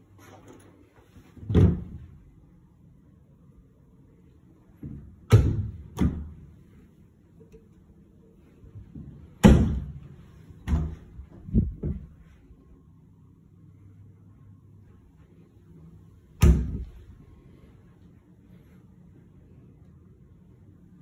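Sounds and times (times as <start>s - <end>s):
doors knocking and thudding shut: 1.4s - 2.1s, 10.7s - 12.2s.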